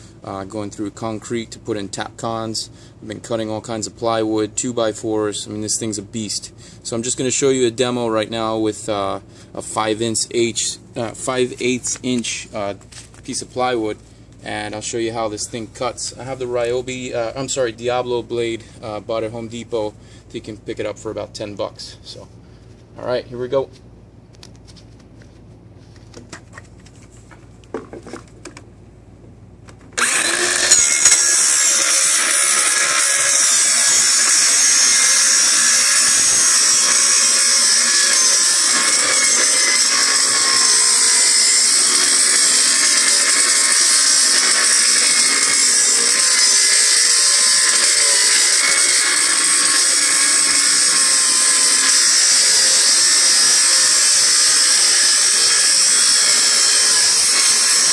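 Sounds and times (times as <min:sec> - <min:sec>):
circular saw cutting plywood: 0:30.0 - 0:57.9.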